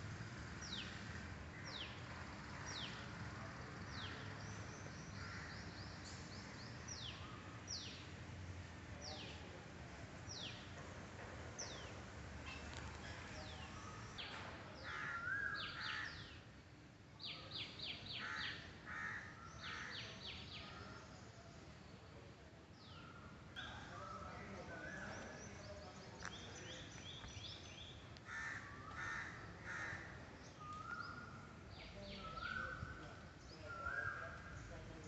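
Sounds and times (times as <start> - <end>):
faint outdoor background noise: 0.0 - 35.0
crows cawing: 14.8 - 16.2, 18.2 - 20.0, 28.2 - 30.2.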